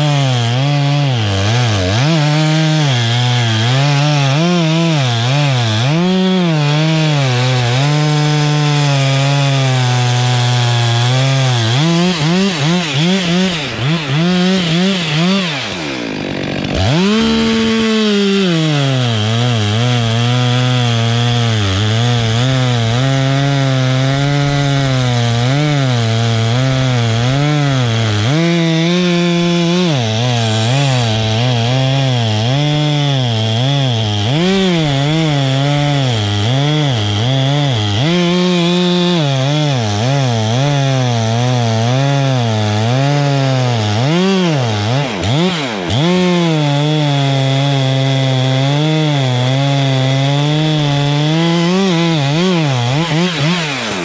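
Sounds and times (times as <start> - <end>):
chainsaw revving: 0.0 - 54.0.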